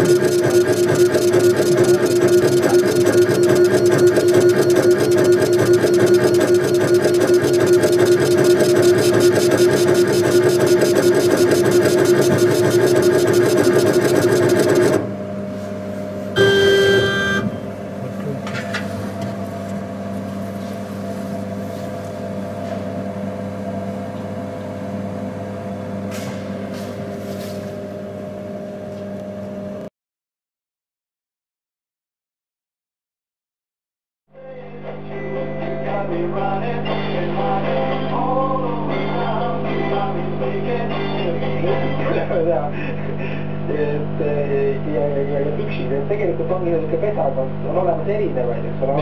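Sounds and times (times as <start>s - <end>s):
laser engraving machine hum: 0.0s - 21.6s
short loud beep: 16.4s - 17.6s.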